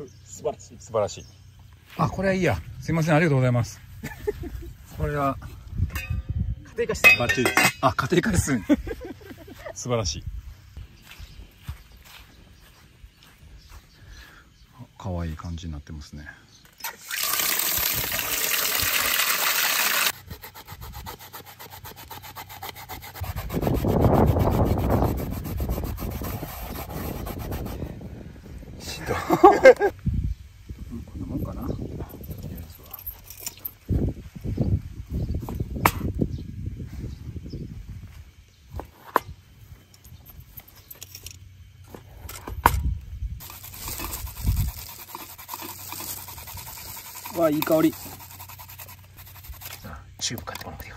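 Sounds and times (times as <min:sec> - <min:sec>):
radish grating rasping strokes: 0:17.8 - 0:27.8, 0:43.4 - 0:50.2.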